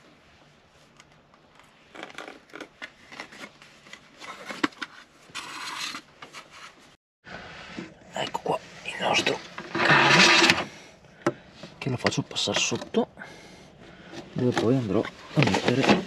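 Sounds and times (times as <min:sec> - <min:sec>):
hands scraping electric cable: 0:09.1 - 0:10.8.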